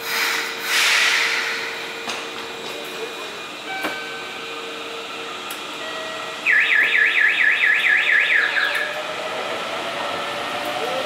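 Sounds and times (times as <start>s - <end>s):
train leaving station: 0.0s - 11.0s
electronic warning alarm warbling: 6.4s - 9.0s.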